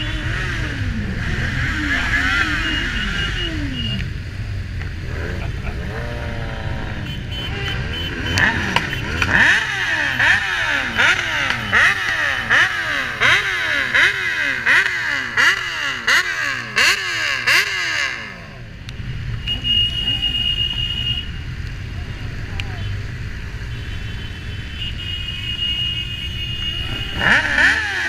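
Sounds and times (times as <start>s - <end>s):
motorcycle engine revving: 0.0s - 20.4s, 26.5s - 28.0s
engines running low: 0.0s - 20.5s, 26.6s - 28.0s.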